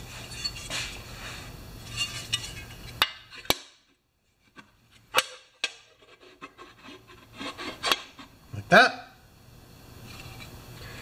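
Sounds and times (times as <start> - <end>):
clinks of metal parts: 0.2 - 0.8.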